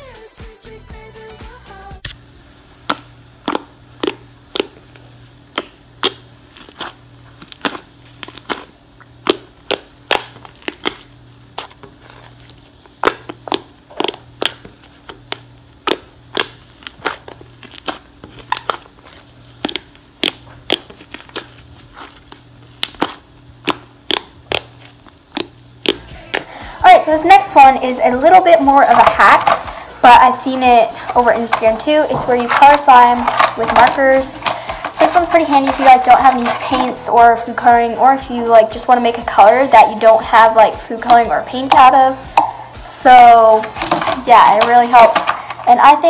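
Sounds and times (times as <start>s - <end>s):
faint steady hum: 0.0s - 46.0s
slime popping and clicking: 2.8s - 4.8s, 5.5s - 11.9s, 12.9s - 21.6s, 22.7s - 26.0s.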